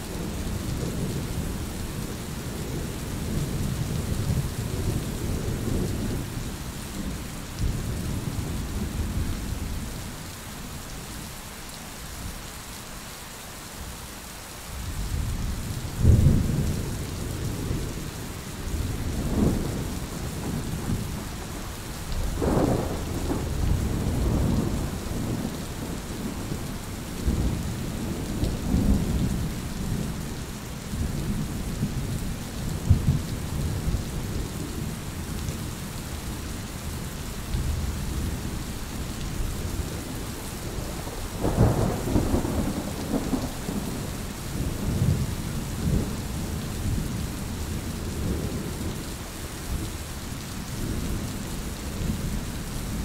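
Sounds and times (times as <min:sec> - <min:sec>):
steady rain: 0:00.0 - 0:53.0
rolling thunder: 0:22.3 - 0:30.2, 0:39.9 - 0:47.2.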